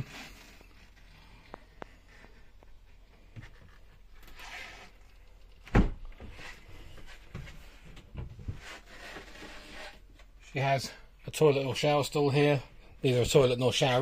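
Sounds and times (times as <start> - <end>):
knocks and thumps in wooden cabin: 1.4 - 4.1, 5.4 - 9.6.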